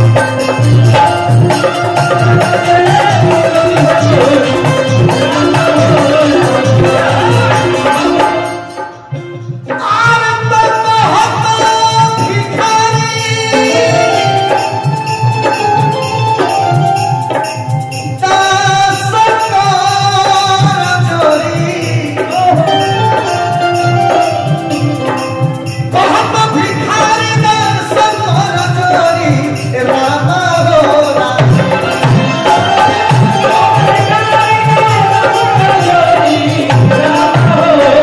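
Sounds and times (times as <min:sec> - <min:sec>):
folk music with hand drum: 0:00.0 - 0:38.0
person singing: 0:00.0 - 0:38.0.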